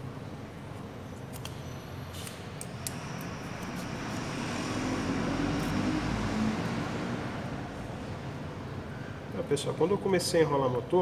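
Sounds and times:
vehicle passing: 3.0 - 9.3.

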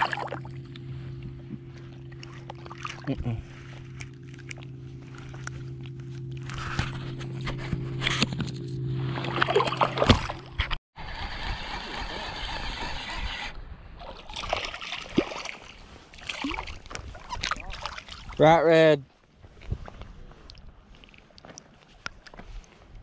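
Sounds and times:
steady low hum: 0.0 - 10.8
water sloshing and splashing: 0.0 - 10.8, 14.0 - 18.4, 20.4 - 22.6.

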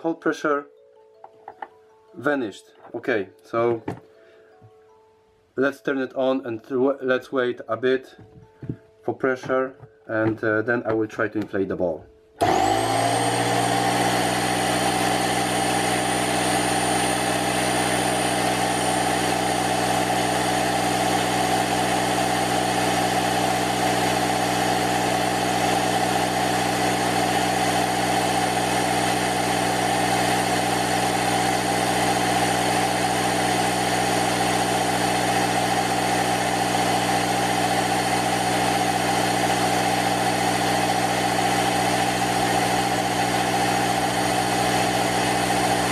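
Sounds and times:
air compressor motor drone: 12.4 - 45.9.

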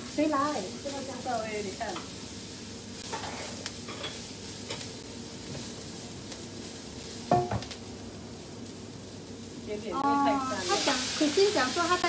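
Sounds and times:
beans sizzling in hot oil: 0.0 - 12.0
spatula scraping a wok: 1.8 - 4.9.

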